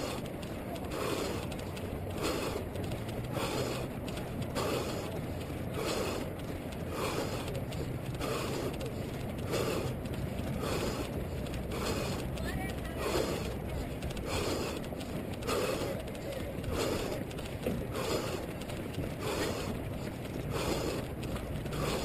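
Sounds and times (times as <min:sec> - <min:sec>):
runner breathing rhythmically: 0:00.0 - 0:22.0
running footsteps on road: 0:00.0 - 0:22.0.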